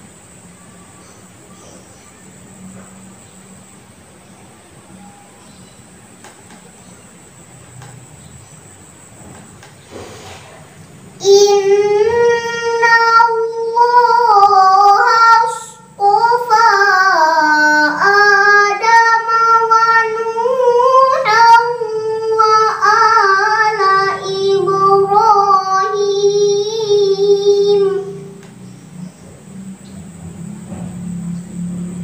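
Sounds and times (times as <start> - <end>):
girl chanting melodically: 11.1 - 28.5.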